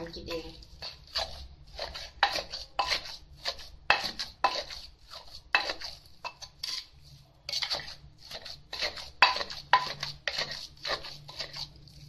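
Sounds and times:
metal spoon scraping bowl: 0.1s - 12.0s
pestle pounding in mortar: 0.8s - 5.9s, 7.6s - 11.7s.

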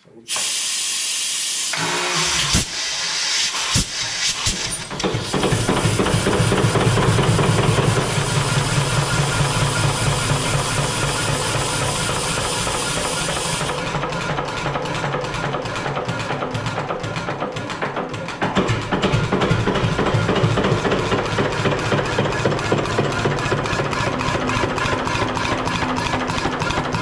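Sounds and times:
compressed air hissing: 0.3s - 1.8s, 2.4s - 13.8s
engine knocking: 3.7s - 27.0s
marine engine running: 5.2s - 27.0s.

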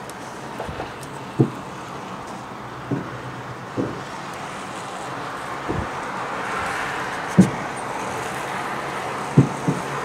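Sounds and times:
distant fireworks booming: 2.8s - 4.6s, 5.6s - 8.4s, 9.0s - 10.0s.

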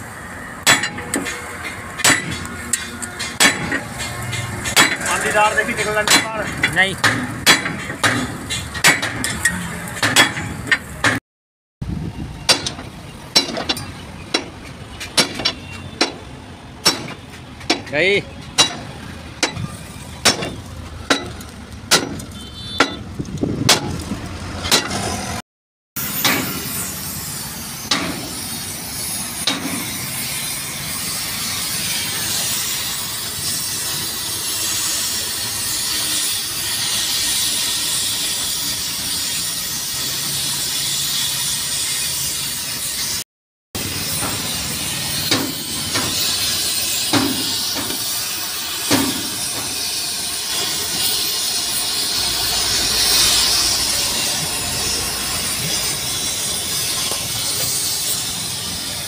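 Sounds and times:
sharp metallic knocks: 0.6s - 11.2s, 12.4s - 24.0s, 24.6s - 25.1s, 26.2s - 26.7s, 27.8s - 28.4s, 29.4s - 30.0s, 43.8s - 48.2s, 48.8s - 50.0s
cutting torch hissing: 26.0s - 43.2s, 43.8s - 59.0s.

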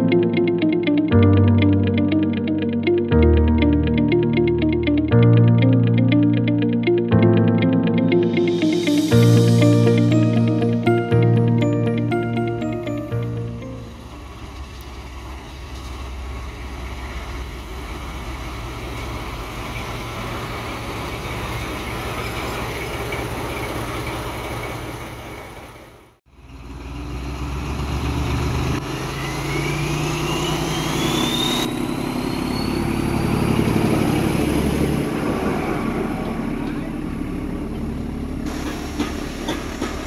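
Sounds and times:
diesel locomotive engine running: 8.1s - 40.0s
high whistle rising in pitch: 29.2s - 33.5s.

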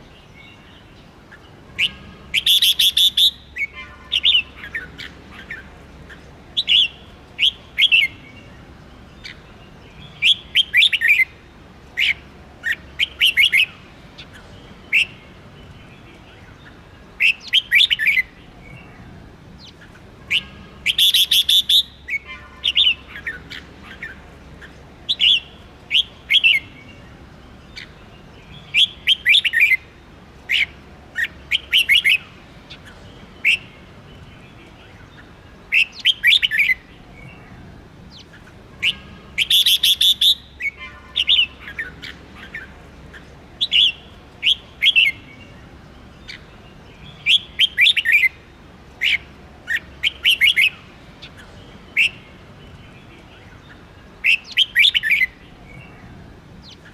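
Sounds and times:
bird singing whistled phrases: 1.8s - 4.9s, 10.1s - 11.3s, 20.3s - 23.4s, 28.6s - 29.8s, 35.7s - 36.8s, 38.8s - 42.1s, 43.6s - 45.3s, 47.1s - 48.4s, 49.0s - 50.8s, 54.2s - 55.9s.

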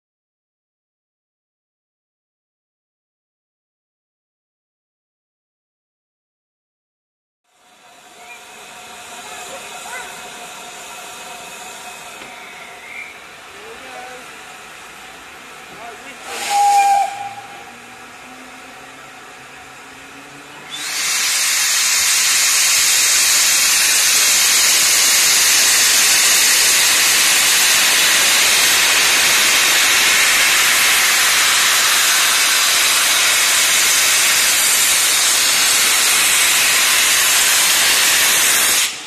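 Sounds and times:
steam hissing: 7.6s - 39.0s
train whistle toot: 16.2s - 18.4s.

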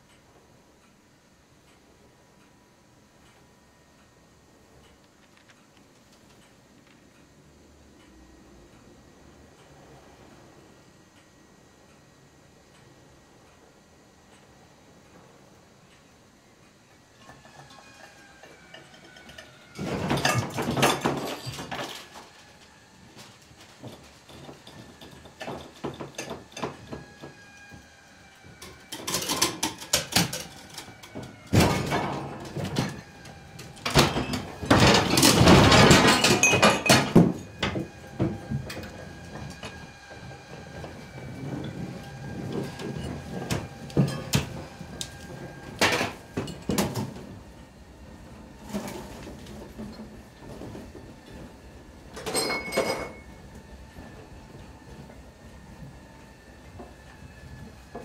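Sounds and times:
knocks and crashes: 31.5s - 33.1s, 33.7s - 39.8s.

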